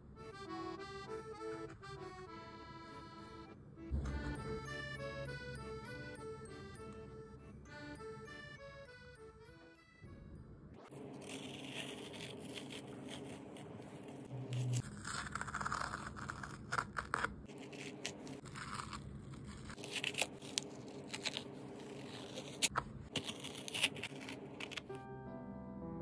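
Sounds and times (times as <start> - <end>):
masking tape peeling: 11.0 - 24.9.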